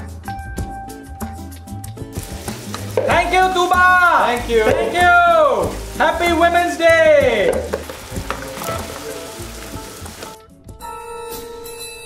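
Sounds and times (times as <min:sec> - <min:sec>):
soft background music: 0:00.0 - 0:12.0
food sizzling in a pan: 0:02.1 - 0:10.4.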